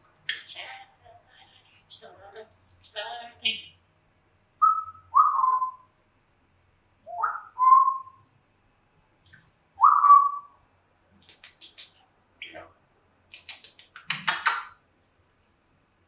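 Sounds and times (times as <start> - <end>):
parrot whistling: 4.6 - 5.9, 7.1 - 8.2, 9.8 - 10.6.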